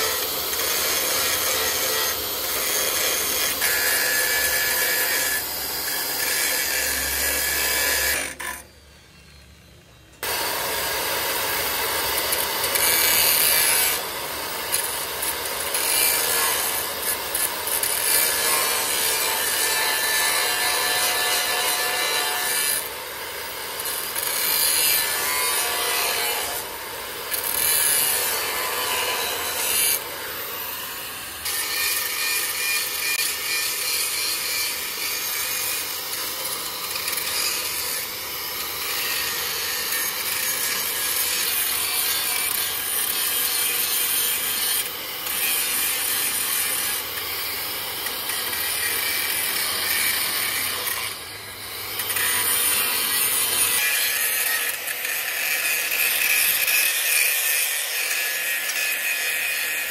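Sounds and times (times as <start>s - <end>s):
grinding on metal: 0.0s - 8.8s, 12.0s - 23.0s.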